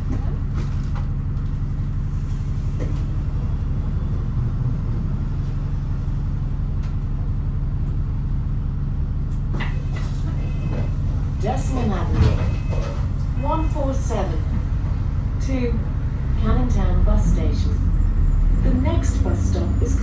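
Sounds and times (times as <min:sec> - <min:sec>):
bus engine drone: 0:00.0 - 0:20.0.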